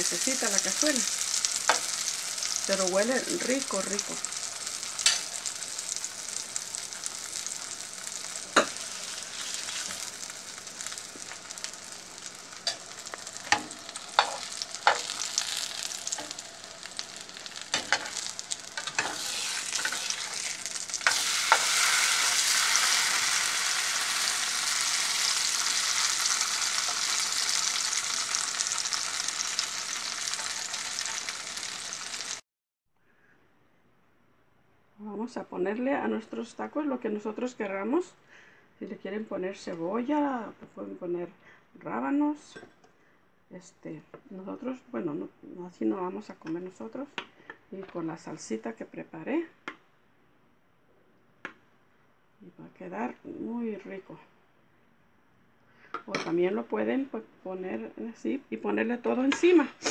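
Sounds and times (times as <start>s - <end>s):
tacos sizzling in oil: 0.0s - 32.4s.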